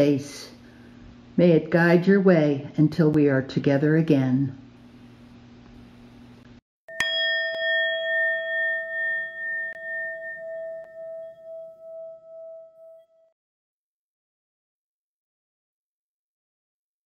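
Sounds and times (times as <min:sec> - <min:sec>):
bell ringing with wavering pulse: 0:06.9 - 0:13.4.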